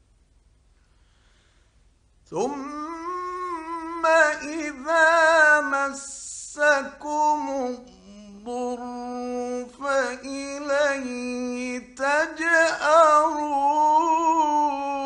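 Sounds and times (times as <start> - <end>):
man chanting recitation: 2.3 - 15.0.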